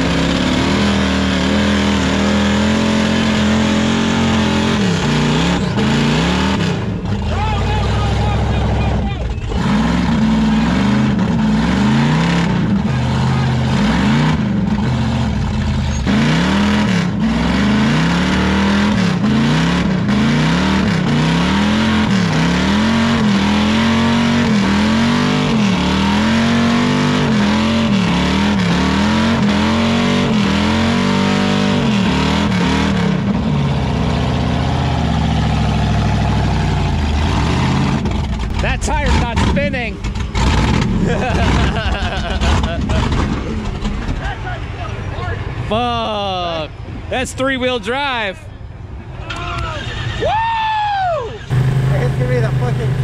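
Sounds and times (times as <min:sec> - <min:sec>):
truck engine revving: 0:00.0 - 0:53.0
tyres spinning on dirt: 0:34.6 - 0:45.9.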